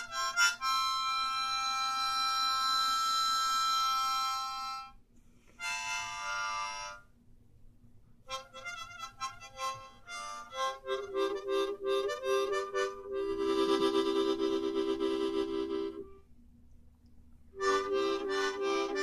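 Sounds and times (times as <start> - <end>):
harmonica playing: 0.0 - 7.1, 8.2 - 16.2, 17.5 - 19.0.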